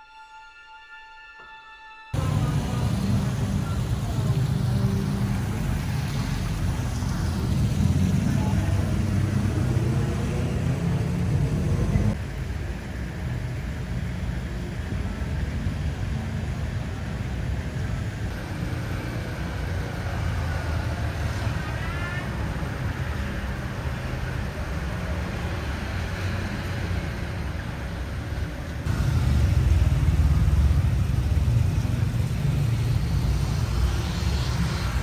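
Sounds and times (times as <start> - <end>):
indistinct voices: 2.2 - 12.2, 18.3 - 35.0
motor scooters and cars passing: 2.2 - 35.0.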